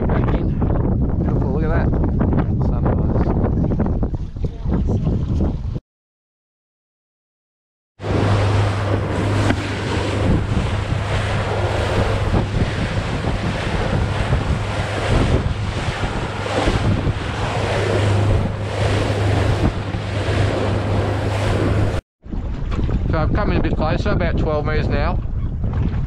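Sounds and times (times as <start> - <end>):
wind buffeting microphone: 0.0 - 5.8, 8.0 - 26.0
boat engine drone: 8.0 - 22.6
water splashing off hull: 8.0 - 23.8.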